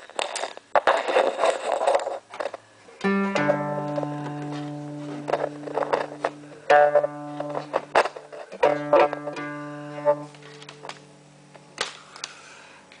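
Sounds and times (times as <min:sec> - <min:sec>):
plucked lute notes and chords: 0:03.0 - 0:11.5.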